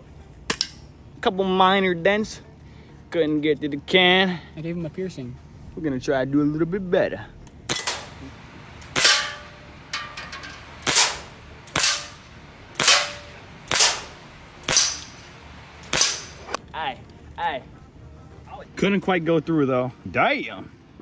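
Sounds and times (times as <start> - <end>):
airsoft pistol shots: 7.7 - 9.6, 10.8 - 16.6
metal can ringing: 9.0 - 10.8.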